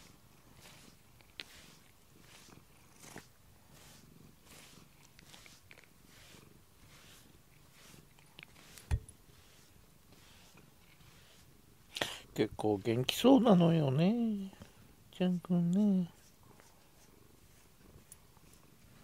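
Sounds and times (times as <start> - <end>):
cat purring: 0.0 - 19.0
dull thump: 8.8 - 9.2.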